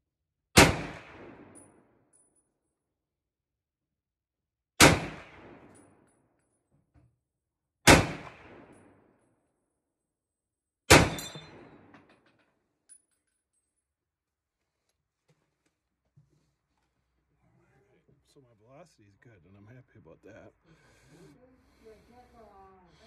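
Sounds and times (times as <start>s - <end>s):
rifle shots with echo: 0.6s - 1.9s, 4.8s - 6.0s, 7.8s - 9.2s, 10.9s - 12.0s
high metallic ring: 11.1s - 11.6s.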